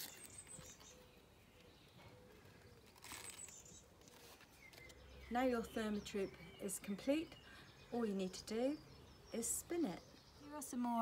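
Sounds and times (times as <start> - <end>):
soft paper rustle: 2.5 - 5.0.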